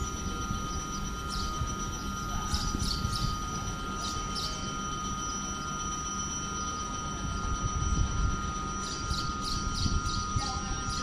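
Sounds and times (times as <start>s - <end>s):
low train rumble: 0.0s - 4.9s
high-pitched electric train hum: 0.0s - 11.0s.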